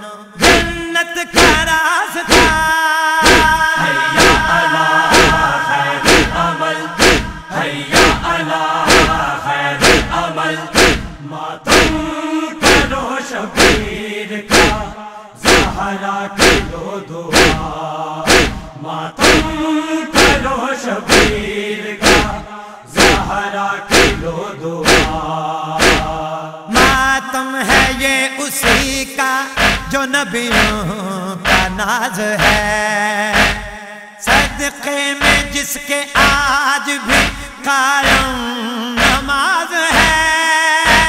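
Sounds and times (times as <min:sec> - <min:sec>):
men chanting in chorus: 0:00.0 - 0:41.0
hands striking chests: 0:01.4 - 0:01.7, 0:02.3 - 0:03.6, 0:05.1 - 0:06.4, 0:07.0 - 0:07.4, 0:08.9 - 0:09.2, 0:09.8 - 0:10.2, 0:10.8 - 0:11.1, 0:11.7 - 0:12.0, 0:13.6 - 0:13.9, 0:14.5 - 0:14.8, 0:15.4 - 0:15.8, 0:16.4 - 0:16.7, 0:17.3 - 0:17.7, 0:18.3 - 0:18.6, 0:19.2 - 0:19.5, 0:20.2 - 0:20.4, 0:21.1 - 0:21.4, 0:22.0 - 0:22.3, 0:23.0 - 0:23.3, 0:23.9 - 0:24.2, 0:24.8 - 0:25.2, 0:25.8 - 0:26.1, 0:29.6 - 0:30.8, 0:31.5 - 0:31.7, 0:33.4 - 0:33.7, 0:35.2 - 0:35.5, 0:37.1 - 0:37.4, 0:38.0 - 0:38.3, 0:39.0 - 0:39.3, 0:39.9 - 0:40.2.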